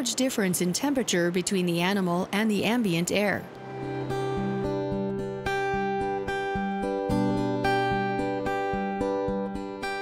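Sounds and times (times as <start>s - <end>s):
acoustic guitar plucked: 3.6s - 10.0s.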